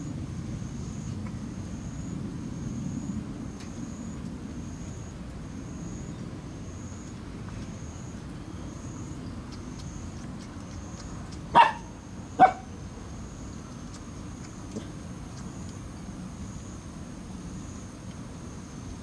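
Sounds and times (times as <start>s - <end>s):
low background hum: 0.0s - 19.0s
puppy barking: 11.5s - 12.7s.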